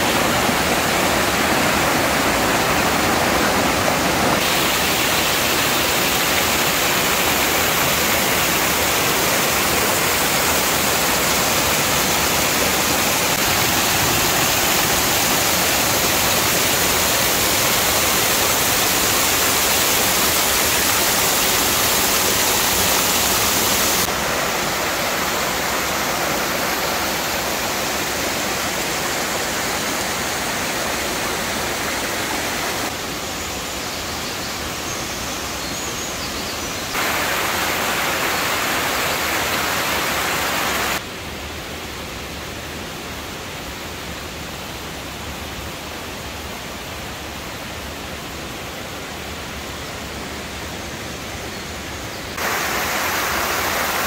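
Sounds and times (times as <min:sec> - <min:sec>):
waterfall rushing: 0:00.0 - 0:41.1, 0:52.3 - 0:54.0.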